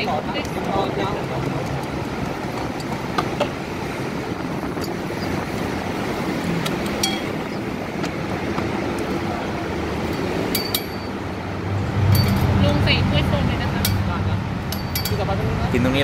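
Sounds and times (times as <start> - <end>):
road traffic noise: 0.0 - 16.0
utensils clinking: 6.8 - 7.6, 10.0 - 11.2, 12.1 - 12.6, 14.7 - 15.3.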